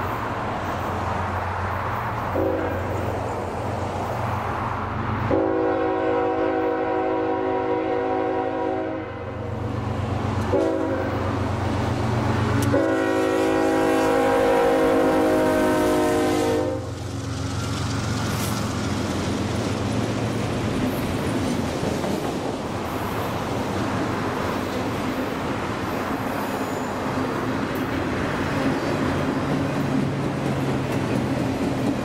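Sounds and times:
train wheel noise: 0.0 - 7.6, 8.4 - 32.0
diesel locomotive rumble: 0.0 - 32.0
locomotive air horn: 2.3 - 3.0, 5.3 - 9.5, 10.4 - 11.4, 12.6 - 17.0.

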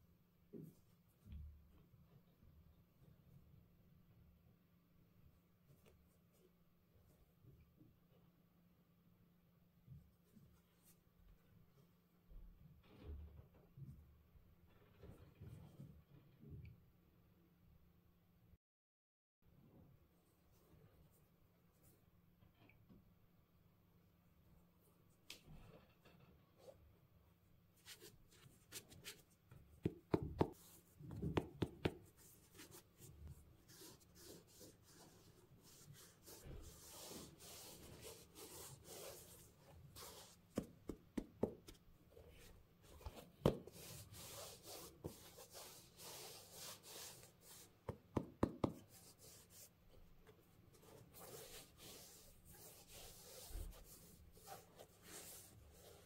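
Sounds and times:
glove rubbing on leather: 27.8 - 41.8, 42.4 - 50.0, 50.7 - 56.0.

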